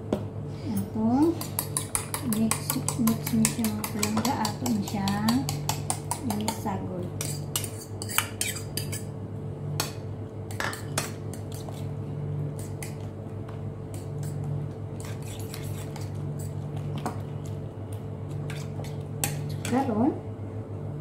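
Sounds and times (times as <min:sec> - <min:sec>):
steady low hum: 0:00.0 - 0:21.0
metal spoon scraping a bowl: 0:01.4 - 0:06.6, 0:07.2 - 0:09.1, 0:15.0 - 0:16.6.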